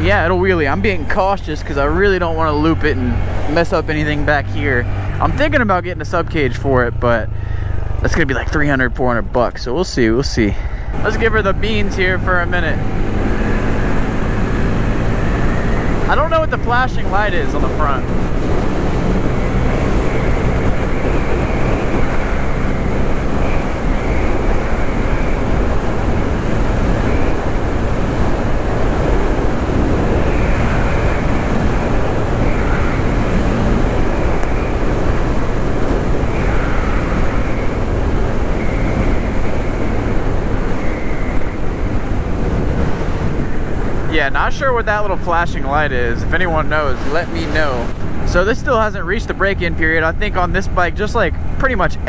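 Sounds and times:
motorcycle engine running hard: 11.0 - 44.1
wind noise on microphone: 17.6 - 44.8, 45.6 - 49.0.

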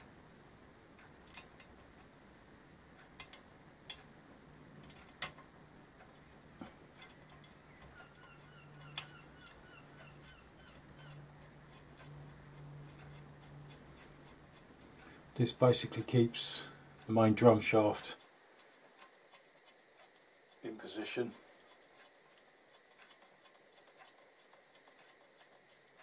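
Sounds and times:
low steady hum: 0.0 - 26.0
small metal parts clicking: 7.0 - 9.6.

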